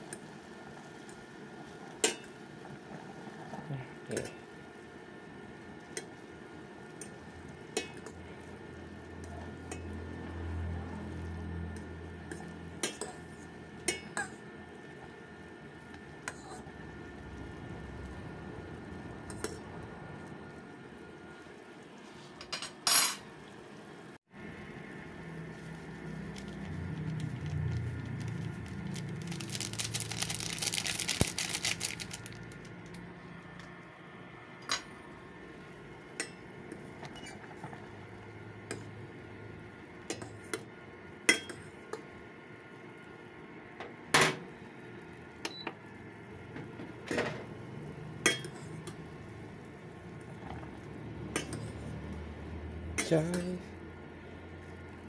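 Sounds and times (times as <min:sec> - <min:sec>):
cooker hum: 0:00.0 - 0:55.0
crackly rustling hiss: 0:25.0 - 0:33.9.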